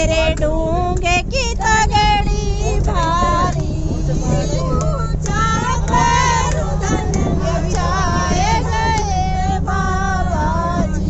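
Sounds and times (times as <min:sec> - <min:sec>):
bus engine and road rumble: 0:00.0 - 0:11.0
women singing: 0:00.0 - 0:11.0.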